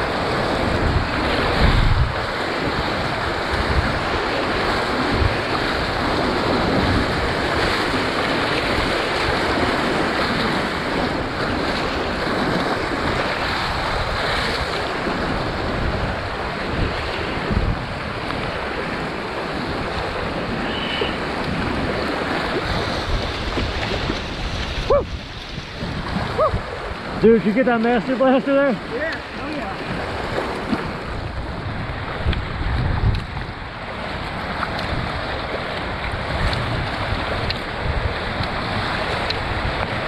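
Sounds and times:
river whitewater rushing: 0.0 - 40.0
waves breaking over kayak bow: 0.0 - 40.0.

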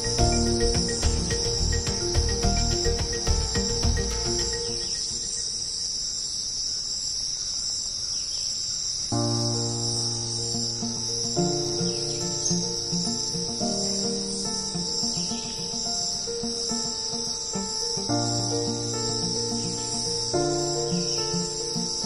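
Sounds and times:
background music: 0.0 - 5.4
insects trilling: 2.9 - 22.0.

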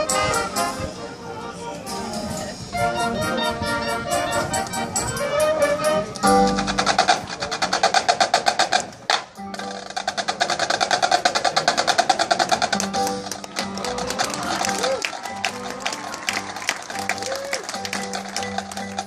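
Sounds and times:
marching band playing: 0.0 - 19.0
percussion fast pulsing rhythm: 4.2 - 19.0.

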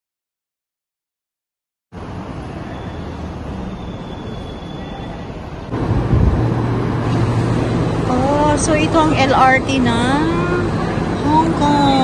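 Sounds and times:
busy concourse background noise: 2.0 - 12.0
deep steady hum: 5.7 - 12.0.

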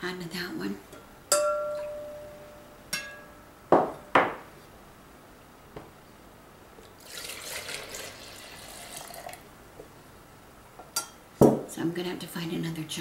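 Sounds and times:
ladle clinking on glass: 1.3 - 2.2
liquid pouring into jug: 6.9 - 9.4.

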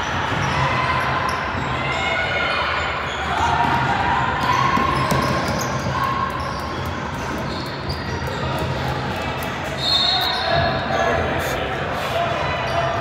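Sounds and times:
basketball bouncing on gym floor: 4.8 - 5.8.

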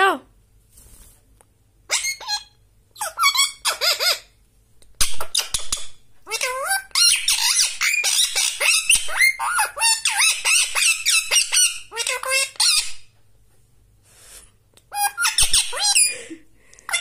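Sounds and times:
parakeet squawking and chirping: 1.9 - 4.4, 5.0 - 13.1, 14.9 - 17.0.

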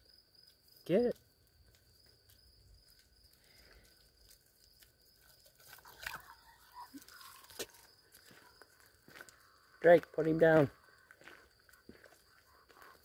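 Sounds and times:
night insects chirring: 0.0 - 13.0
dog crunching insect off asphalt: 1.2 - 9.4.

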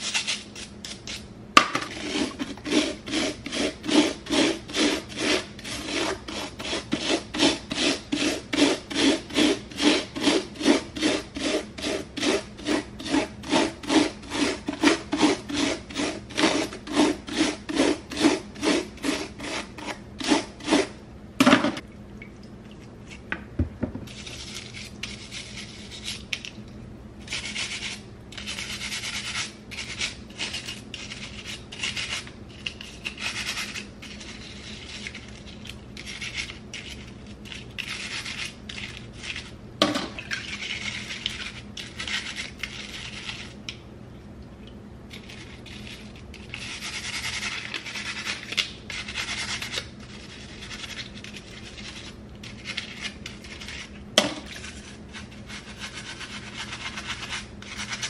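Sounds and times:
scrub brush scratching: 0.0 - 21.0, 24.1 - 26.4, 27.2 - 39.6, 40.3 - 43.6, 45.1 - 58.0.

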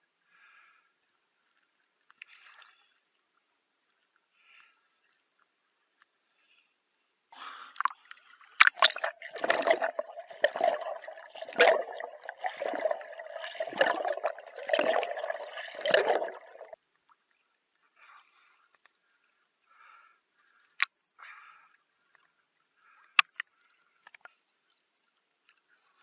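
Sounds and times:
water sloshing and gurgling: 7.8 - 16.8
muffled swimming splashes: 8.5 - 16.8.

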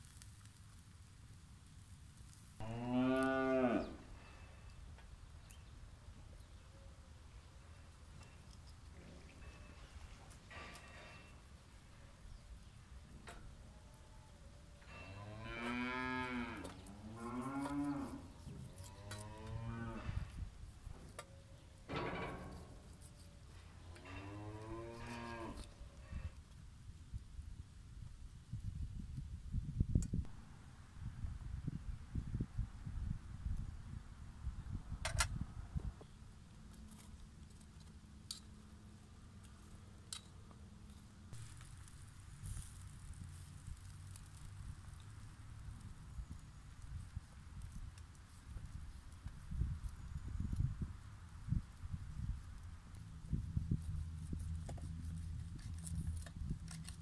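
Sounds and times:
cattle mooing: 2.6 - 4.0, 15.1 - 18.2.

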